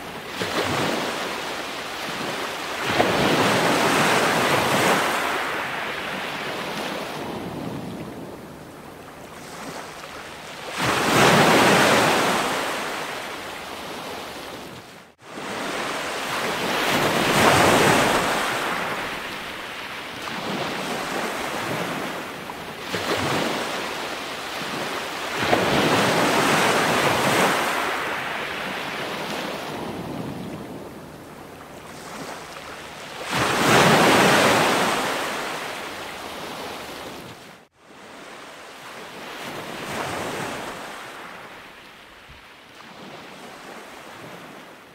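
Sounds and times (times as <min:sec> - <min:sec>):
ocean waves washing in: 0:00.0 - 0:31.0.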